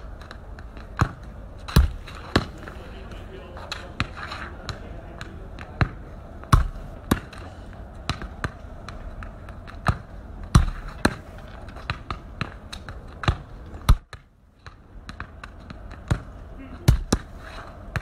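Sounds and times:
football kicked on pavement: 0.6 - 2.7, 4.0 - 7.4, 8.1 - 16.3, 16.9 - 17.3.

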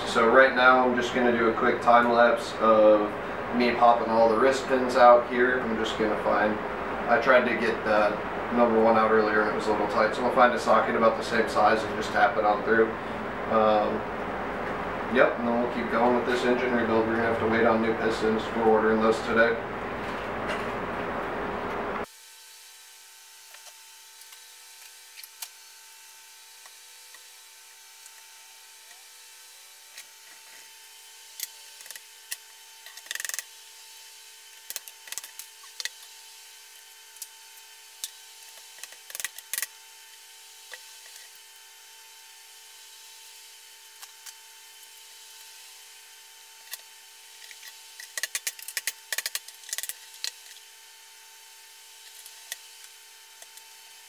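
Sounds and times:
faint steady hum: 0.0 - 22.1.

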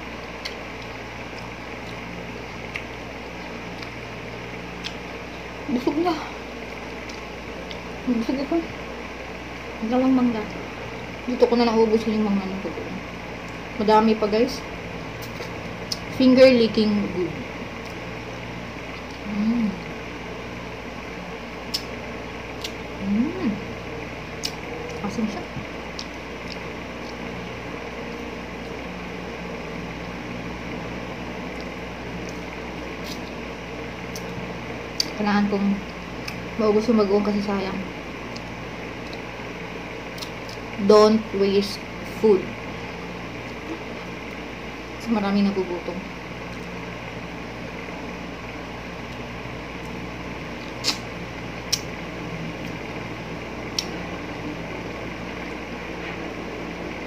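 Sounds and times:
appliance hum: 0.0 - 57.0
wet mouth smacks eating: 31.6 - 33.3, 50.6 - 51.1
wet mouth clicks: 33.0 - 33.3, 50.6 - 51.1, 51.7 - 51.9.

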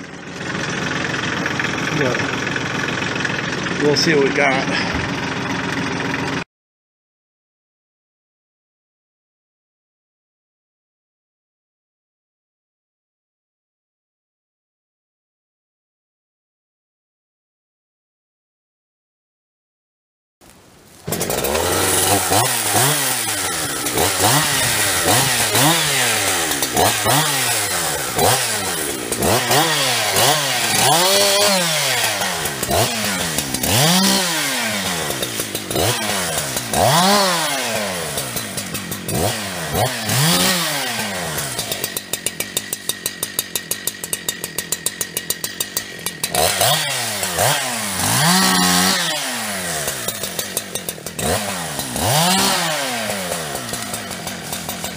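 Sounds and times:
chainsaw cutting wood: 0.0 - 6.5, 20.4 - 54.9.

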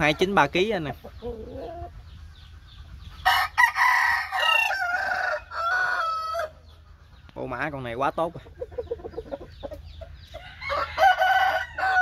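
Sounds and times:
rooster crowing: 3.2 - 6.6, 10.4 - 12.0.

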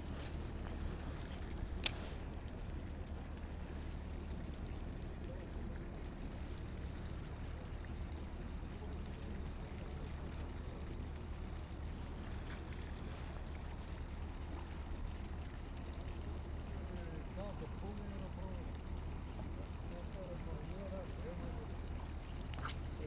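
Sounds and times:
sharp click: 1.8 - 2.0.

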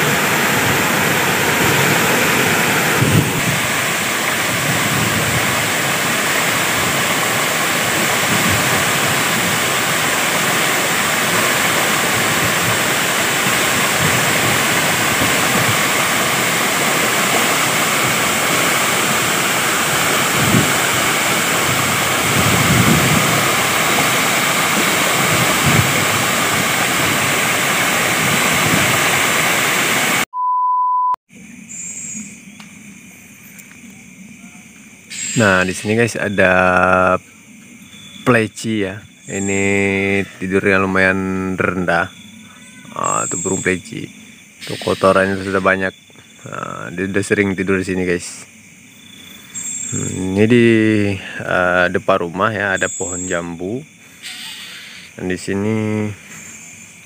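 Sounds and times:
waterfall rushing: 0.0 - 30.3, 44.6 - 45.8
short steady beep: 30.3 - 31.2.

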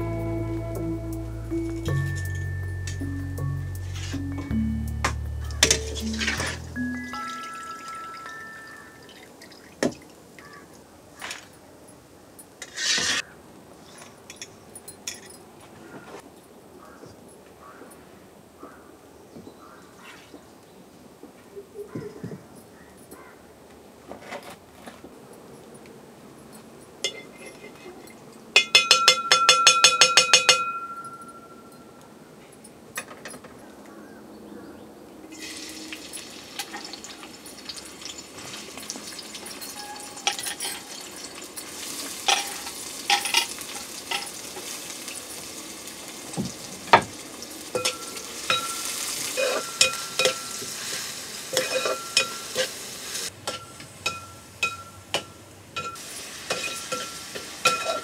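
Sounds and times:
metal spatula scraping a pan: 3.8 - 4.4, 5.6 - 6.7, 12.6 - 14.0, 47.8 - 58.0
metal spoon clattering on a pan: 27.0 - 27.8, 28.6 - 31.2, 39.4 - 41.1, 42.3 - 44.3, 47.7 - 52.7, 53.4 - 58.0
onions sizzling in a pan: 35.3 - 54.8, 55.8 - 58.0.

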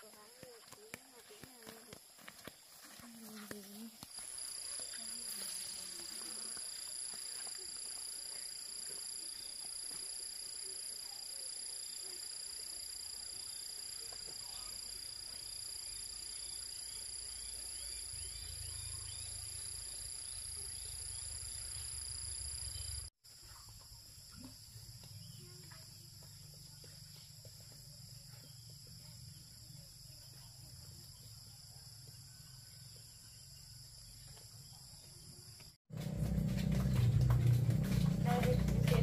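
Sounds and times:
insects trilling: 1.6 - 35.7
low rumble: 36.0 - 39.0.

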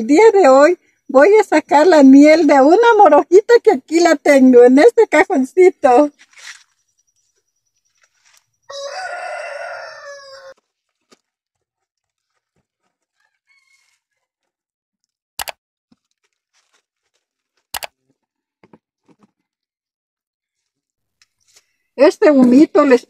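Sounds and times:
rooster crowing: 8.7 - 10.6, 13.1 - 14.3.

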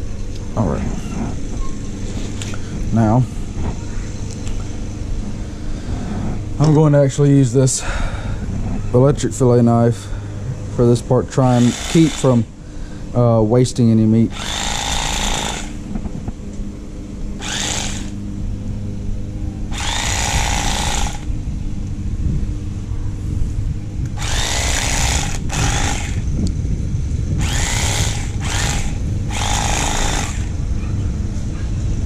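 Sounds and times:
electric knife motor hum: 10.8 - 12.6, 14.3 - 22.0, 23.9 - 30.8
harsh rasping of blades cutting: 11.3 - 12.5, 14.3 - 15.8, 17.4 - 18.2, 19.7 - 21.3, 24.2 - 26.3, 27.4 - 30.6.

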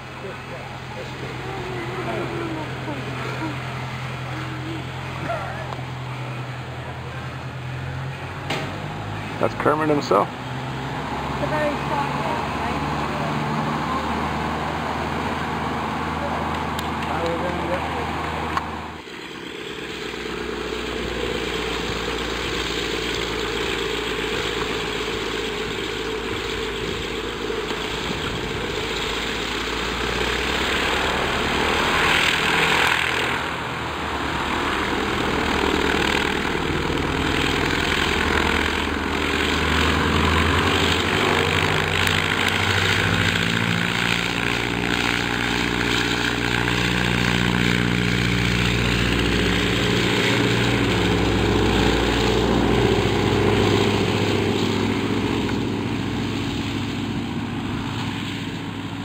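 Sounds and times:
propeller plane engine droning: 0.0 - 59.0
propeller wash rush: 0.0 - 59.0.

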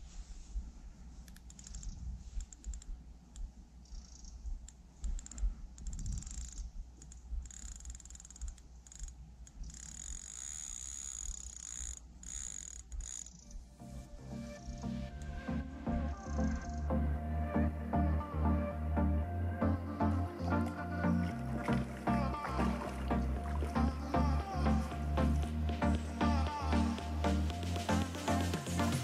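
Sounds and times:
fishing reel clicking: 1.3 - 2.9, 3.9 - 13.6
high reel buzz: 7.4 - 13.6.

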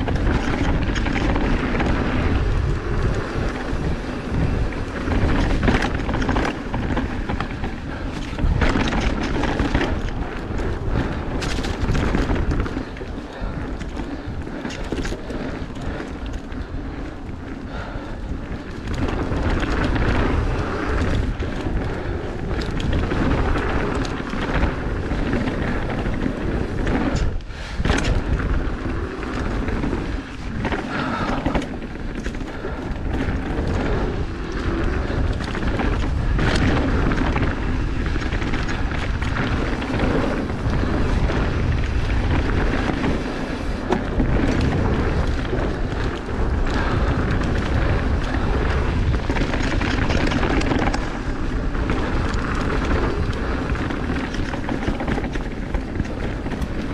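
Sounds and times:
bike rattling: 0.0 - 56.9
tyres rumbling on dirt: 0.0 - 56.9
wind buffeting microphone: 0.0 - 56.9.

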